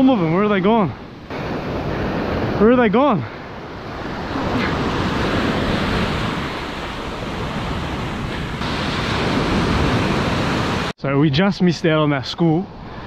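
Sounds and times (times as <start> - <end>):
ocean waves breaking on beach: 0.0 - 11.0.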